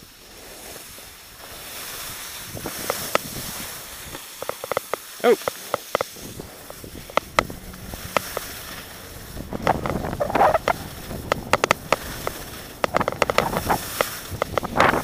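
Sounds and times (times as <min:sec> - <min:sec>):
skis scraping over snow: 0:00.0 - 0:15.0
wind on microphone: 0:02.0 - 0:04.2, 0:06.1 - 0:15.0
sharp clicks and knocks: 0:04.4 - 0:07.5, 0:09.6 - 0:15.0.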